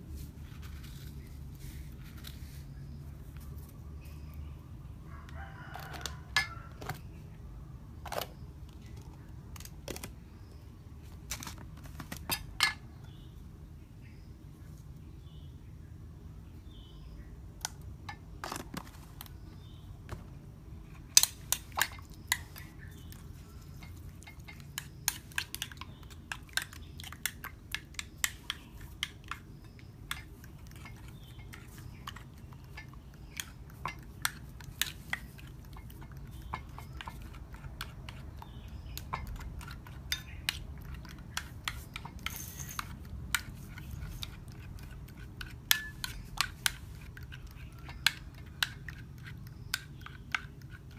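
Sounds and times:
kitchen utensils clicking and tapping: 0:21.2 - 0:50.9.

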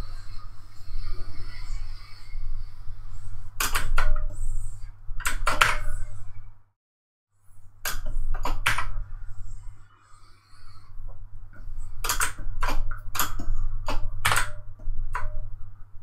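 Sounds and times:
steady low hum: 0:00.0 - 0:06.8, 0:07.4 - 0:16.0
computer mouse clicks: 0:03.6 - 0:04.5.

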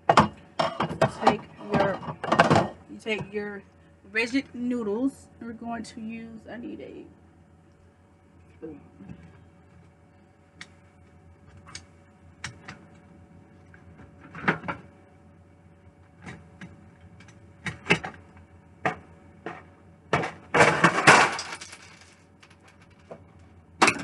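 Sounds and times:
utensils clattering rattle: 0:20.6 - 0:22.2.

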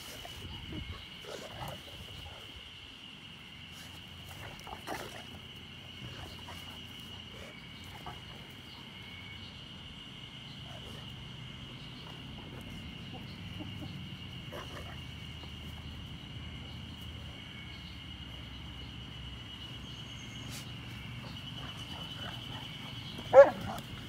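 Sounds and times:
dog barking: 0:23.3 - 0:23.8.

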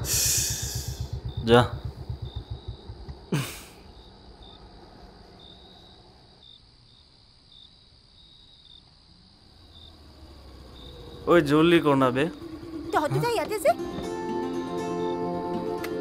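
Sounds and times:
faint low hum: 0:00.0 - 0:07.6
crickets chirping: 0:00.0 - 0:15.9.

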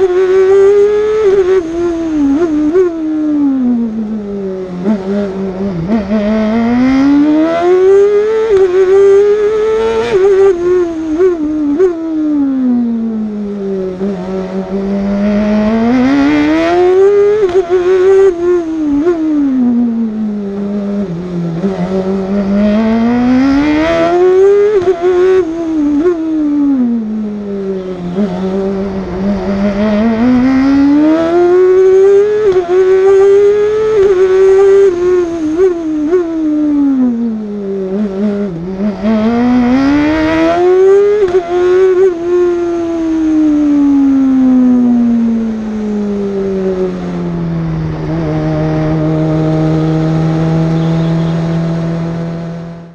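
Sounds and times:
race car engine revving: 0:13.1 - 0:26.2, 0:26.8 - 0:43.6, 0:44.2 - 0:52.9.

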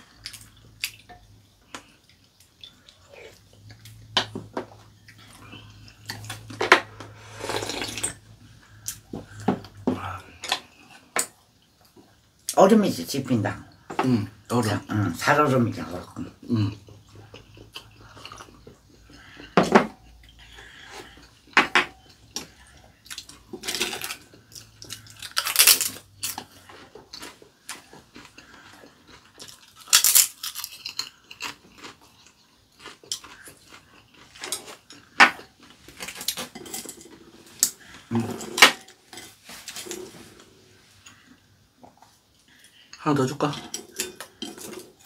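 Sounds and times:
chewing: 0:16.1 - 0:43.0
crunching fried chips: 0:22.4 - 0:37.0.

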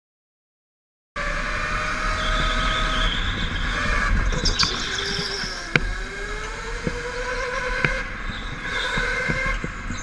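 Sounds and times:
go-kart motor drone: 0:01.2 - 0:10.0
sharp knocks: 0:04.2 - 0:10.0.

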